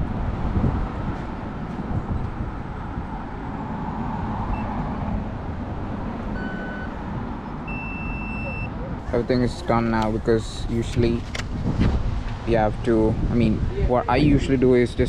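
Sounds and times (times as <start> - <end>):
city street traffic: 0.0 - 15.0
short electronic beep: 6.4 - 6.9, 7.7 - 8.7.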